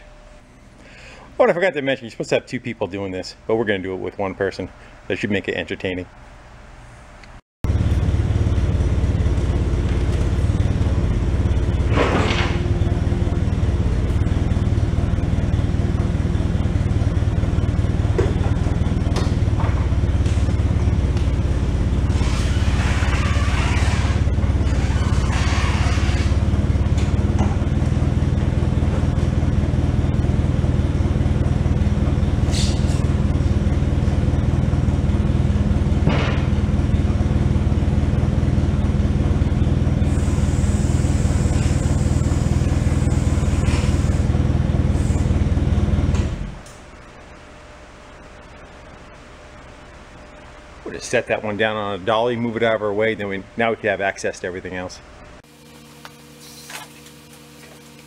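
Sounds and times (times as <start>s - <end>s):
forklift engine running: 7.6s - 50.8s.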